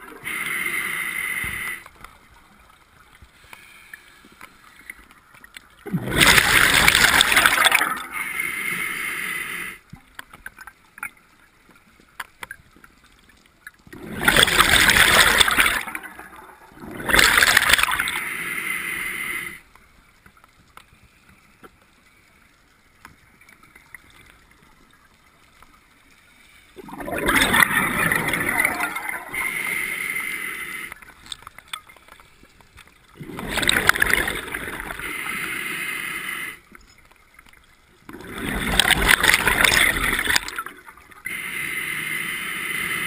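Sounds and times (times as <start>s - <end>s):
diver breathing through regulator: 0.2s - 1.9s, 6.2s - 9.8s, 17.1s - 19.6s, 28.9s - 31.0s, 34.8s - 36.6s, 41.3s - 43.0s
faint clicks: 1.4s - 5.9s, 9.8s - 14.0s, 19.6s - 26.8s, 30.8s - 35.0s
exhaled bubbles gurgling: 5.7s - 9.8s, 13.8s - 19.6s, 26.8s - 31.0s, 33.1s - 36.6s, 38.0s - 43.0s.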